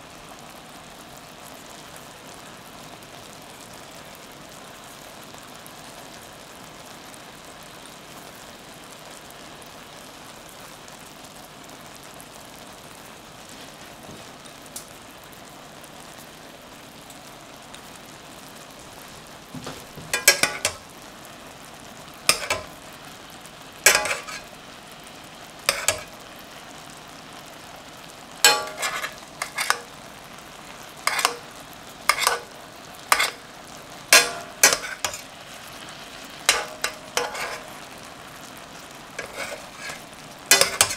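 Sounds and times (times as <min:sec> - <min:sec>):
chicken sizzling in a frying pan: 0:00.0 - 0:40.9
metal spoon scraping a pan: 0:19.6 - 0:20.8, 0:22.3 - 0:22.9, 0:23.8 - 0:24.6, 0:25.7 - 0:26.2, 0:28.4 - 0:30.0, 0:31.0 - 0:33.5, 0:34.1 - 0:38.0, 0:39.2 - 0:40.9.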